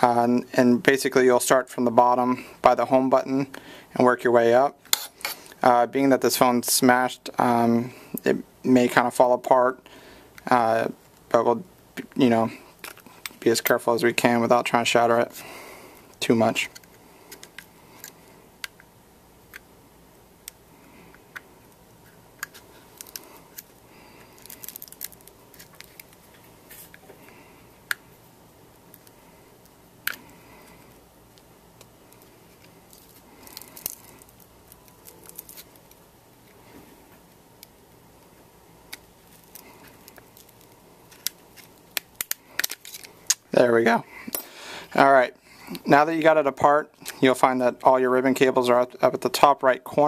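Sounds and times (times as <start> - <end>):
pry tool sharp clicks and crackles: 41.1 - 43.5.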